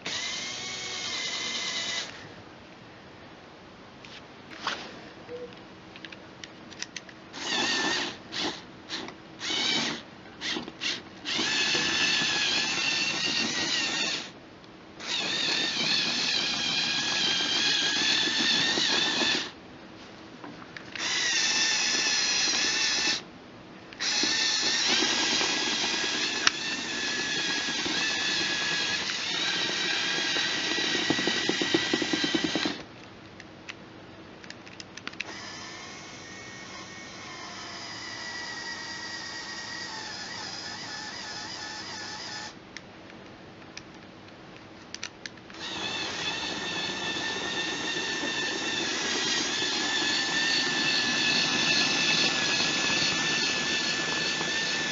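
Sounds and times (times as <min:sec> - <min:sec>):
toy electric motors whining: 0:00.0 - 0:02.3, 0:07.3 - 0:14.4, 0:15.0 - 0:19.6, 0:21.0 - 0:23.3, 0:24.0 - 0:32.8, 0:35.2 - 0:42.6, 0:45.5 - 0:54.9.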